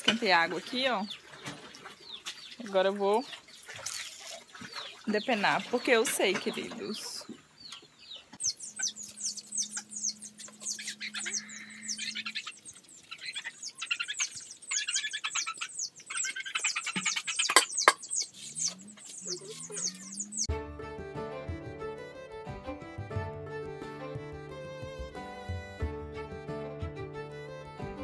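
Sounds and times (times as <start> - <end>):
small birds chirping: 0.2 - 20.5
music: 20.5 - 28.0.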